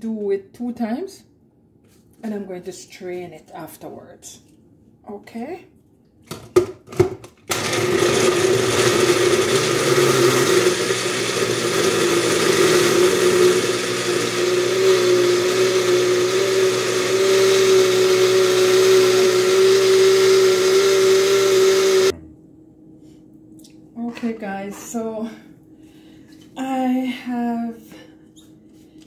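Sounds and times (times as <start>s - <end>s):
blender motor whine: 7.5s - 22.1s.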